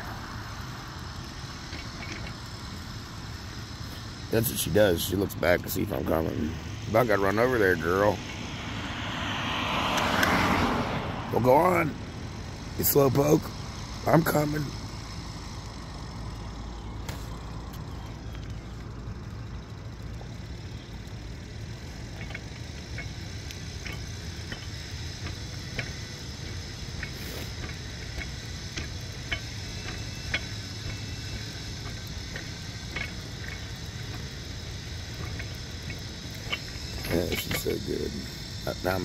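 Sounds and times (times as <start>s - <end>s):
high insect drone: 0.0s - 39.0s
road traffic hum: 0.0s - 39.0s
light irregular ticks: 11.6s - 39.0s.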